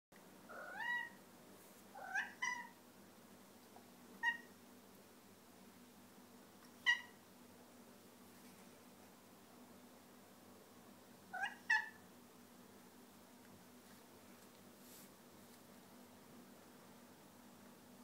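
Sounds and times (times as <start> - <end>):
cat meowing: 0.5 - 1.2, 2.0 - 2.8, 4.2 - 4.5, 6.8 - 7.2, 11.3 - 12.0.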